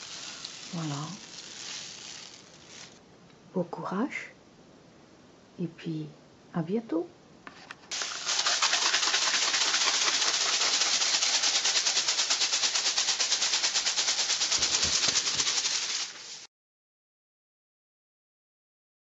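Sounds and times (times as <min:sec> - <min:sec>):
rain stick rattling: 0:00.0 - 0:03.0, 0:07.9 - 0:16.5.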